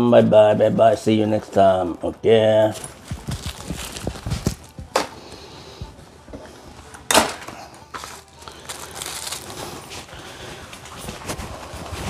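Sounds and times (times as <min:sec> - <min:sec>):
clothing rustle: 0:02.7 - 0:04.9, 0:07.9 - 0:12.0.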